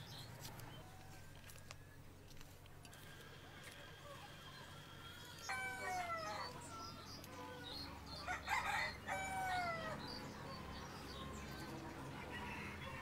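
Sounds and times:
chickens calling: 0:03.4 - 0:13.0.

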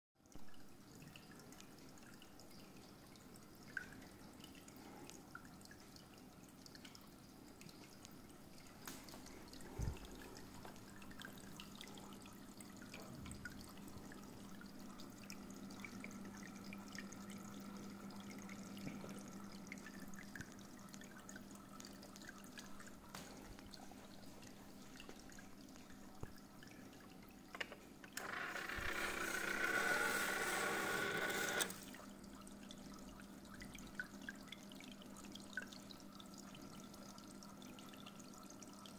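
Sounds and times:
water trickling into aquarium: 0:00.2 - 0:38.9
fish feeder motor whirring: 0:28.2 - 0:31.9.

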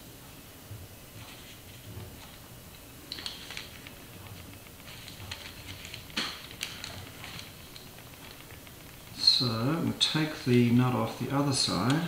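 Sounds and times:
faint metallic clicks and rattles: 0:03.1 - 0:10.5.

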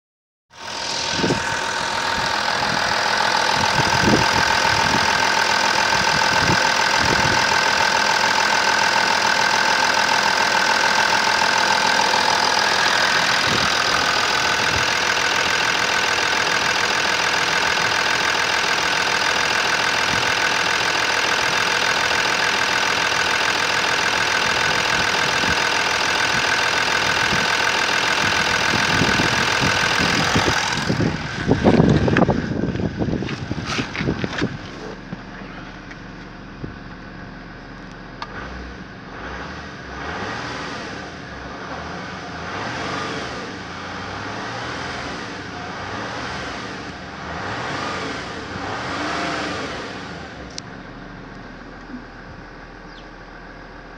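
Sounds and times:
diesel engine idling: 0:00.5 - 0:53.9
steady whine: 0:00.6 - 0:19.8.

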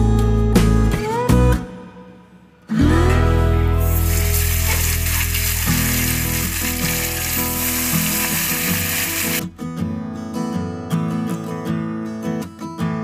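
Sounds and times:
guitar background music: 0:00.0 - 0:13.0
fish frying in hot oil: 0:03.8 - 0:09.4.

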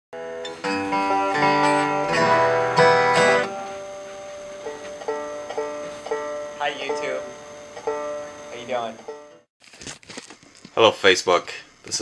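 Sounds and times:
banjo: 0:00.2 - 0:09.4
acoustic guitar: 0:00.2 - 0:09.5.

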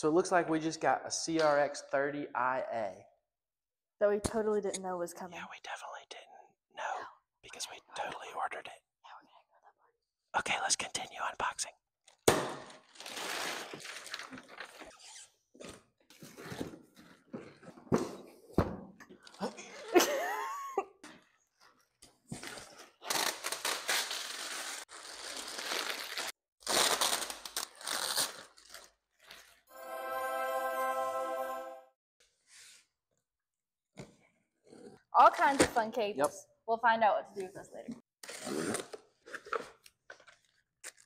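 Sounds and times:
plastic wrap rustling: 0:12.8 - 0:15.0, 0:22.6 - 0:29.6
sustained music chord: 0:29.7 - 0:31.9.

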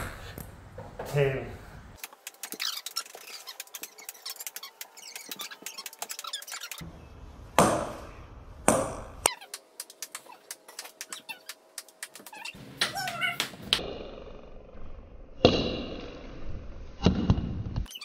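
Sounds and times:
ping pong balls bouncing on wood: 0:08.6 - 0:13.8.

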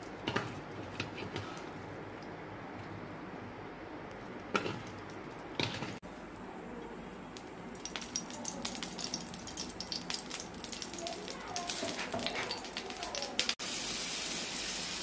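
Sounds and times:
hot oil crackling in a frying pan: 0:07.3 - 0:15.0.

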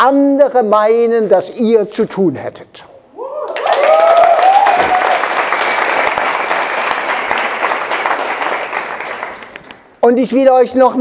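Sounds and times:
people cheering: 0:03.2 - 0:09.3
audience clapping: 0:03.5 - 0:10.0.

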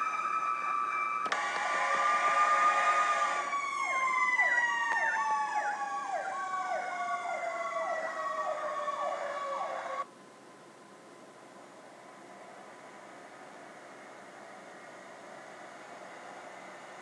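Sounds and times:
siren sweeping quickly downward: 0:00.0 - 0:10.0
siren wail falling in pitch: 0:00.0 - 0:10.0.

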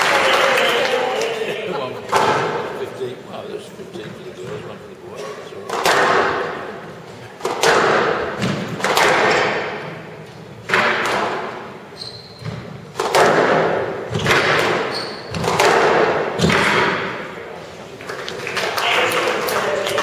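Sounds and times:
racket striking squash ball: 0:05.6 - 0:17.5
short high squeaks: 0:12.0 - 0:12.6, 0:14.8 - 0:15.4.

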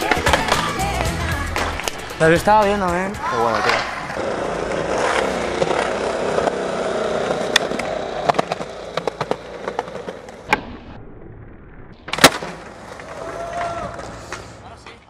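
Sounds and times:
skateboard wheels rolling on concrete: 0:00.0 - 0:15.0
skateboard landing smack: 0:10.4 - 0:10.9, 0:12.1 - 0:14.1
skateboard tail pop: 0:12.1 - 0:12.6.

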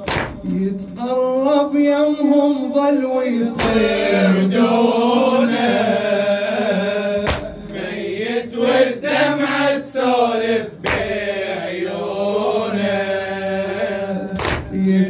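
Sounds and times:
man chanting into a microphone: 0:00.0 - 0:04.6, 0:13.9 - 0:15.0.

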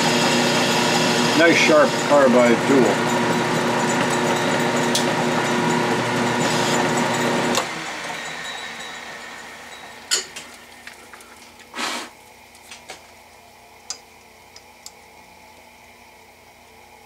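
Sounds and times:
lathe spindle coasting to stop: 0:00.0 - 0:10.1.

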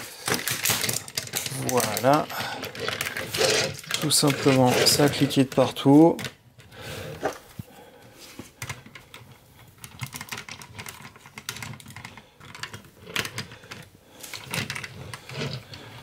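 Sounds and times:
plastic toy parts clicking: 0:00.2 - 0:06.7, 0:09.8 - 0:16.0.

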